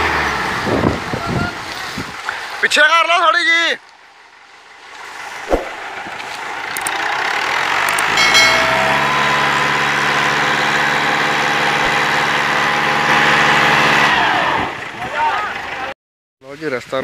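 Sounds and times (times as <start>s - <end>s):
tractor diesel engine straining: 5.3s - 15.9s.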